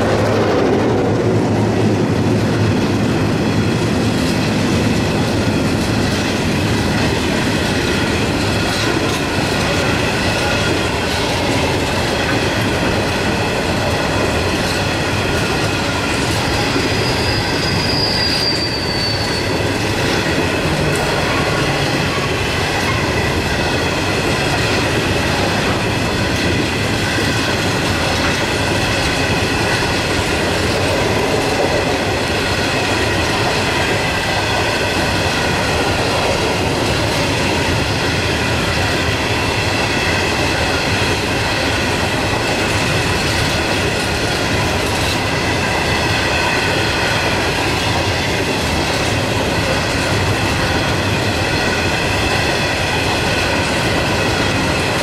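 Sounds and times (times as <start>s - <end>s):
freight wagons rolling on rails: 0.0s - 55.0s
high wheel squeal: 16.4s - 19.7s.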